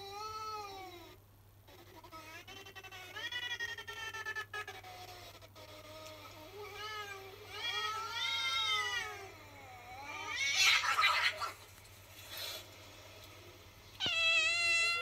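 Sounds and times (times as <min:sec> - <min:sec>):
cats meowing through speaker: 0:06.3 - 0:11.6, 0:14.0 - 0:15.0.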